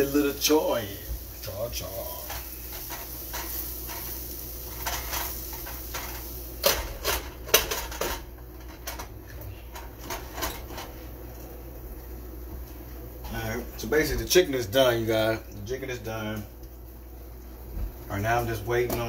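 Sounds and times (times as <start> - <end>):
spatula scraping in frying pan: 2.2 - 8.0.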